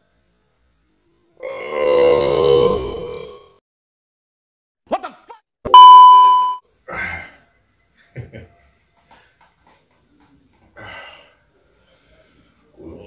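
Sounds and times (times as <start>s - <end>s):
bell-like ding: 5.7s - 6.6s.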